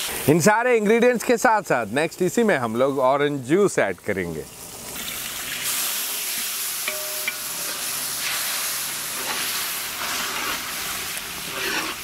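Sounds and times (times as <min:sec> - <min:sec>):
sauce sizzling in metal pan: 0:00.0 - 0:12.0
spatula stirring: 0:06.9 - 0:12.0.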